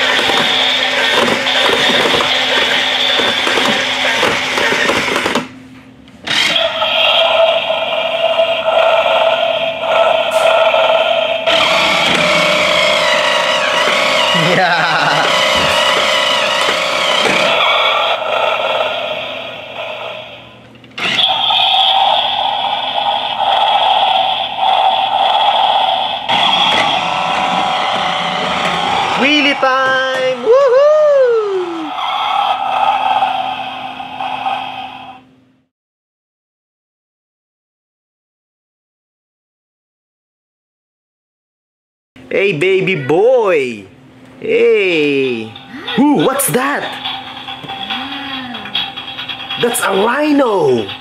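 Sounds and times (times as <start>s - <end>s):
toy truck motor whirring: 0.0s - 5.4s, 6.2s - 19.5s, 21.0s - 30.4s
electronic engine sounds: 0.0s - 5.5s, 6.3s - 30.8s, 31.7s - 35.3s, 44.8s - 51.0s.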